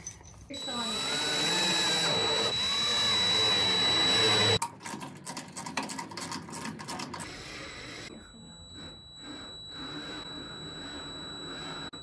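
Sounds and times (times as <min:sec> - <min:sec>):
cordless drill running: 0:00.6 - 0:04.6, 0:07.2 - 0:12.0.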